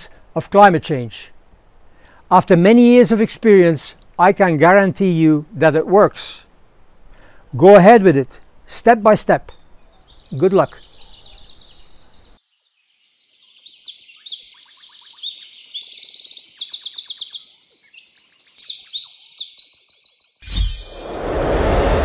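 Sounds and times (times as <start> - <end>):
small birds chirping and trilling: 8.2 - 22.0
loud burst of noise: 20.4 - 22.0.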